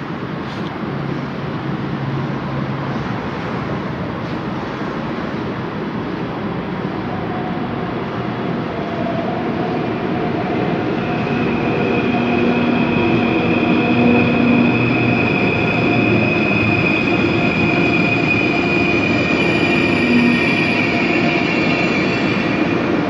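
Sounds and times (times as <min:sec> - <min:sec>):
electric train running noise: 0:08.0 - 0:23.0
steady high whine: 0:08.0 - 0:23.0.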